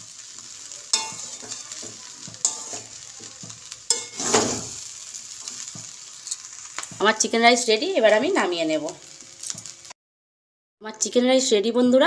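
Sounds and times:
food sizzling: 0.0 - 10.0
metal spatula scraping a wok: 0.9 - 6.5.

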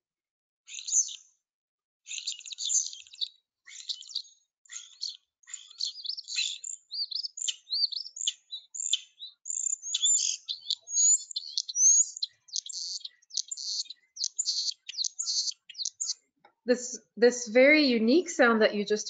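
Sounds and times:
starling song: 16.7 - 19.0.

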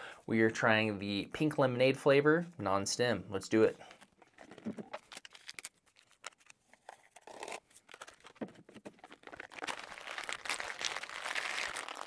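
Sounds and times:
packet crinkling: 4.0 - 12.0.

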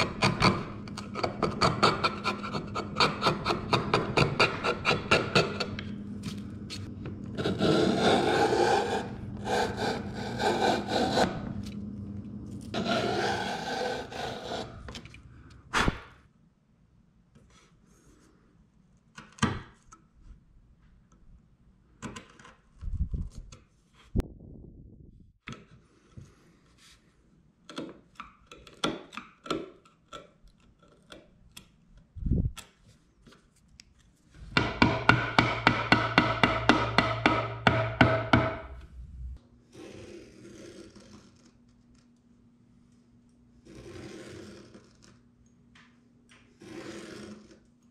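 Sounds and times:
chisel scraping wood: 0.0 - 6.0, 6.7 - 11.6, 12.7 - 15.2, 39.8 - 41.6, 43.6 - 45.2, 46.6 - 47.7
chisel knocking: 34.5 - 38.8.

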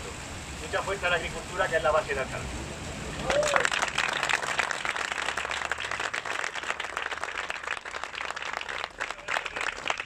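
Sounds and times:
crowd applauding: 3.2 - 10.0.

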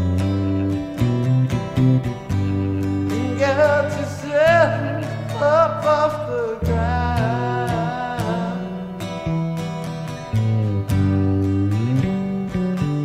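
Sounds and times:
acoustic guitar: 0.0 - 13.0
bass guitar: 0.0 - 13.0
person singing long notes: 2.6 - 9.0.

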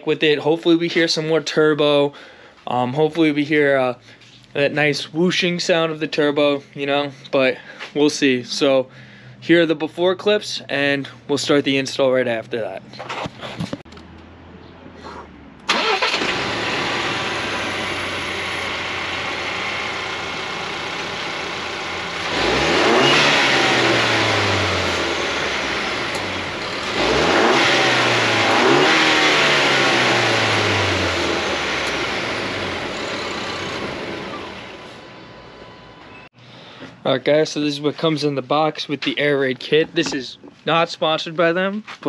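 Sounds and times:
car engine idling and revving: 12.8 - 36.4.

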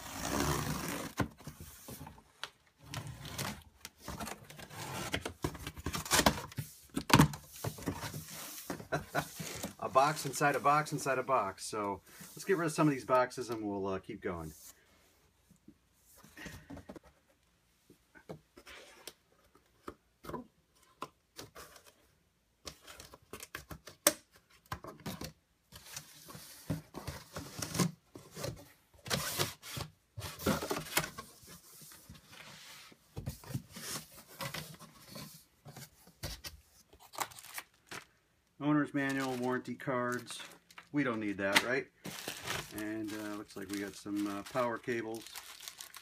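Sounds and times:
cardboard scraping and rubbing: 0.0 - 2.2.

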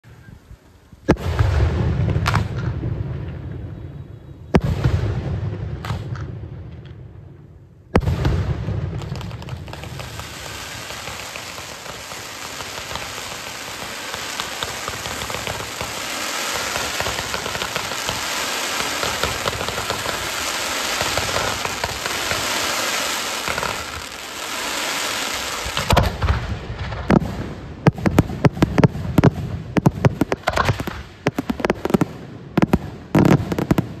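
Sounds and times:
crackling firework stars: 0.0 - 34.0
sharp firework bangs: 4.6 - 6.4, 8.0 - 34.0
firework shell bursts: 9.7 - 26.1.

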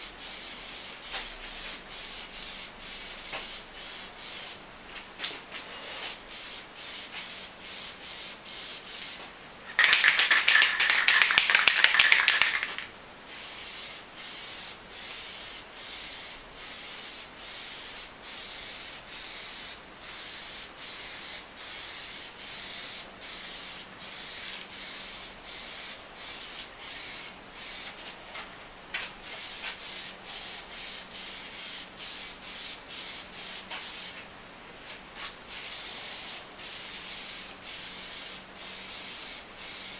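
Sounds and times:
aerosol can ball rattling: 9.7 - 12.9.

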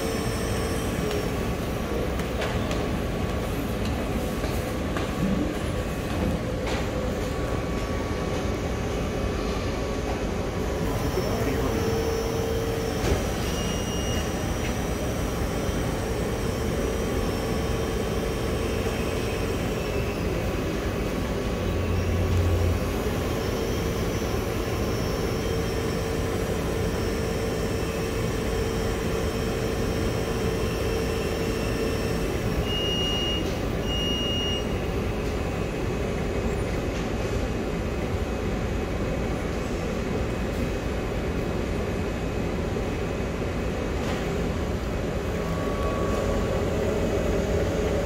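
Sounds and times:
machine motor hum and whine: 0.0 - 48.0
short high beeps: 11.0 - 14.4, 31.5 - 34.8.

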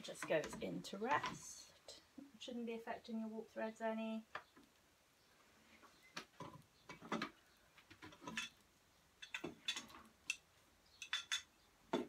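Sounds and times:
wooden loom clicks and taps: 0.0 - 1.4.

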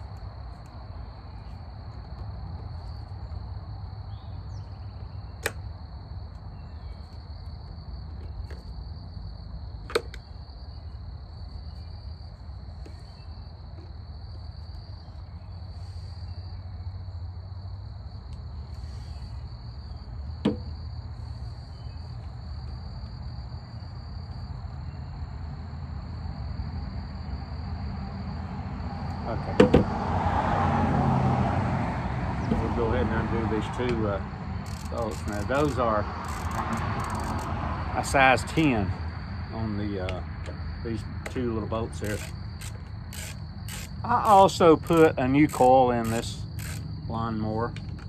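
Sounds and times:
high insect trill: 0.0 - 31.6, 32.3 - 48.0
sharp tool clicks: 34.7 - 37.5, 42.0 - 46.8.

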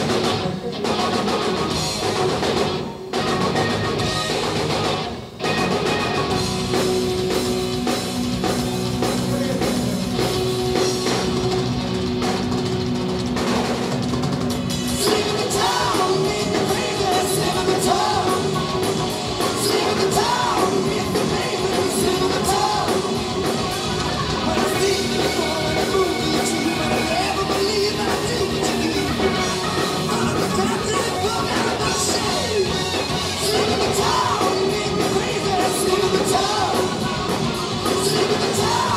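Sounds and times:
bass guitar: 0.0 - 38.9
distorted electric guitars: 0.0 - 38.9
drum kit: 0.0 - 38.9
man singing lead vocal: 9.0 - 10.4, 14.9 - 23.6, 24.4 - 38.9.

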